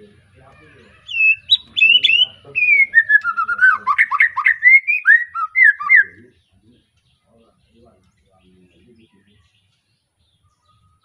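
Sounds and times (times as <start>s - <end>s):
bird singing whistled phrases: 1.0s - 6.3s.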